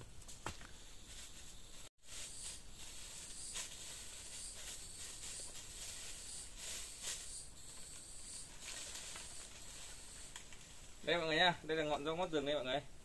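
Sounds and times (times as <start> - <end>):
rustling leaves and snapping brush: 0.0 - 12.3
high-pitched insect drone: 1.1 - 11.5.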